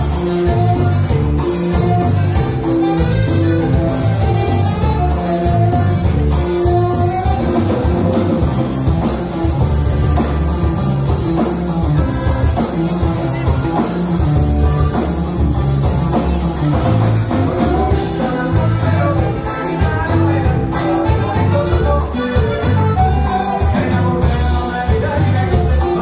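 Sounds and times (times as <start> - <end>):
band playing: 0.0 - 26.0
person singing: 16.2 - 26.0.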